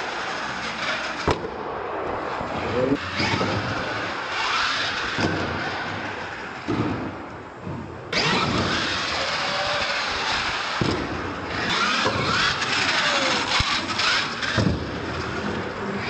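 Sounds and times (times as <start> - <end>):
toy truck motor whining: 8.1 - 10.8, 11.5 - 14.6.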